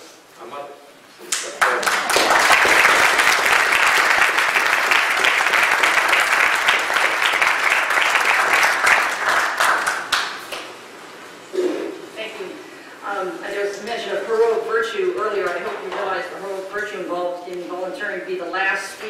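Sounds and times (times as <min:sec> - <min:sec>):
audience applauding: 0:01.5 - 0:10.8.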